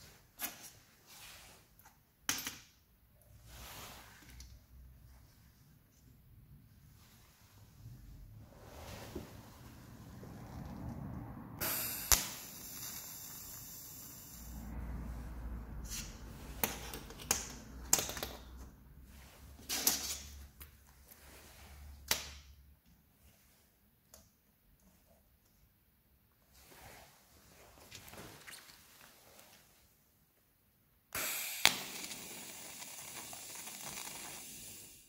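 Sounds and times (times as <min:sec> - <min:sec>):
steady hiss: 0:11.6 - 0:14.7, 0:31.2 - 0:35.0.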